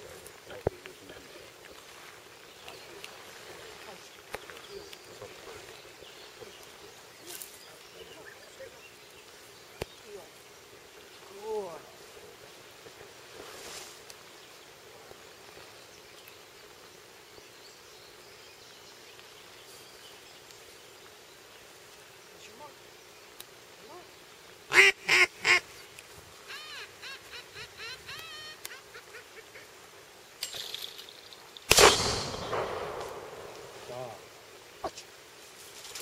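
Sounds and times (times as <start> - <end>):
duck call quacks: 24.7 - 25.6, 26.5 - 29.7.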